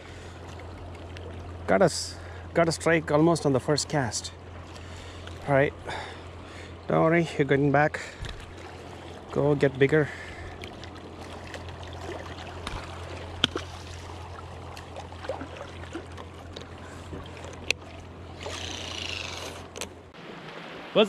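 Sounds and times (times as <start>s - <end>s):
steady low hum: 0.0s - 20.4s
water lapping against rocks: 8.0s - 21.0s
fishing reel clicks: 18.4s - 19.9s.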